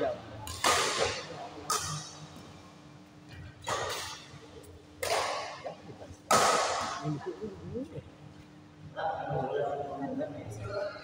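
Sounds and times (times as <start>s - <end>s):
rackets hitting shuttlecock: 0.4s - 2.5s, 3.6s - 7.0s.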